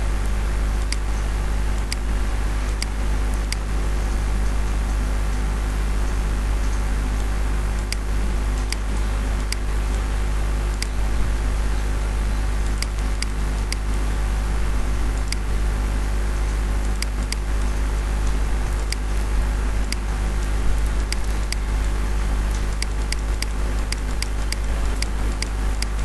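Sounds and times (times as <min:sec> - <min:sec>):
low electrical hum and hiss: 0:00.0 - 0:26.0
computer mouse clicks: 0:10.8 - 0:11.0, 0:16.8 - 0:17.5, 0:18.3 - 0:19.1, 0:19.8 - 0:21.7, 0:22.5 - 0:26.0.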